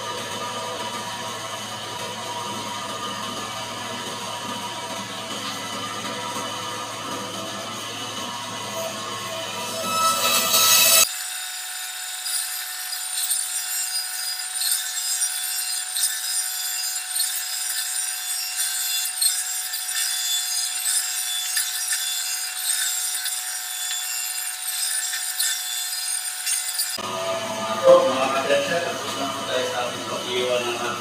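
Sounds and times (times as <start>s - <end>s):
band saw whining: 0.0s - 31.0s
saw blade rasping through fish: 9.6s - 27.0s.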